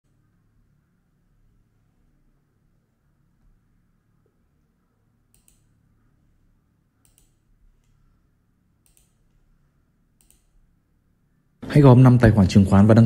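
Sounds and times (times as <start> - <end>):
faint sharp clicks: 5.3 - 5.7, 7.0 - 8.0, 8.8 - 9.2, 10.2 - 10.5.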